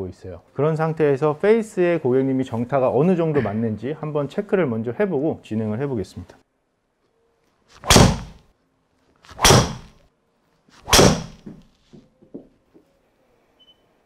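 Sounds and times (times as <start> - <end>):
golf club striking ball: 7.9 - 8.4, 9.4 - 9.9, 10.9 - 11.6.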